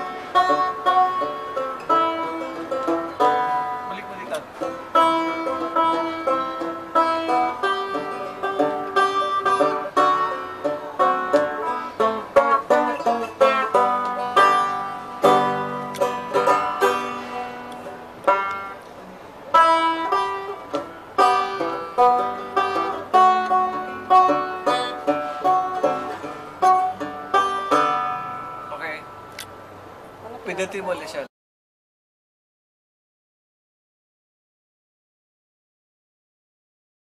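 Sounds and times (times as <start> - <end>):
banjo strummed and picked: 0.0 - 29.3.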